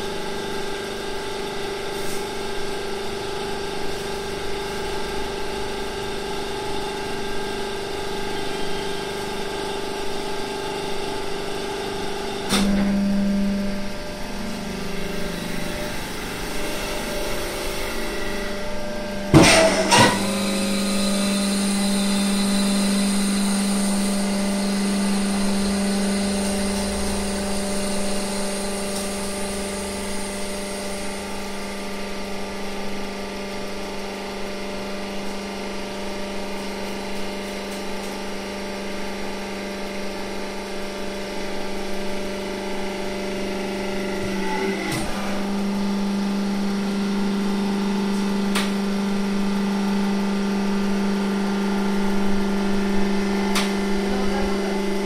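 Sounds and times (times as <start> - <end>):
hydraulic press motor humming: 0.0 - 55.0
high whine: 1.1 - 32.3.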